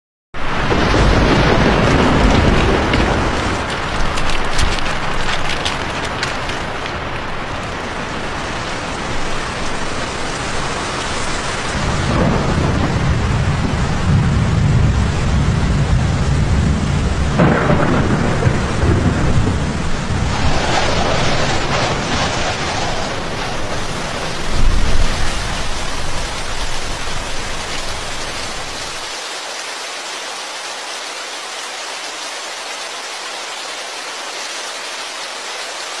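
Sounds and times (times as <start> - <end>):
thunder rolling: 0.4 - 9.8, 11.4 - 29.0
steady rain: 0.4 - 36.0.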